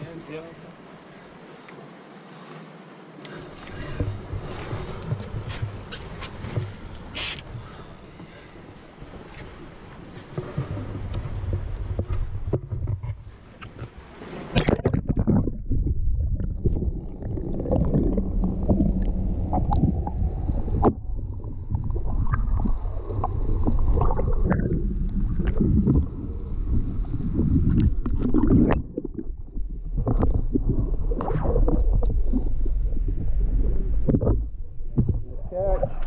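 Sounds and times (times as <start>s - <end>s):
underwater knocks: 14.6s - 16.9s, 27.7s - 32.1s, 34.0s - 35.4s
muffled underwater gurgling: 14.6s - 36.0s.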